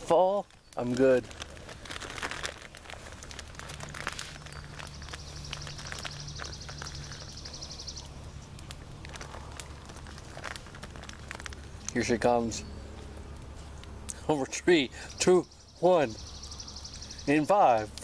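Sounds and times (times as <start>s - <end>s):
wood fire crackling and popping: 0.0s - 18.0s.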